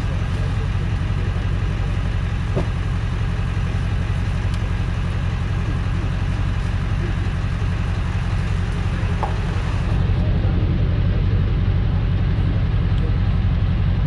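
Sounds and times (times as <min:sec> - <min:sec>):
truck engine idling: 0:00.0 - 0:14.0.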